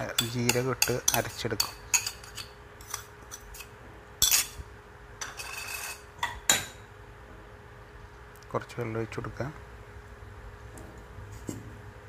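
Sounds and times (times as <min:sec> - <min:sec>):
spoon scraping bowl: 0:00.2 - 0:04.6, 0:05.2 - 0:06.1.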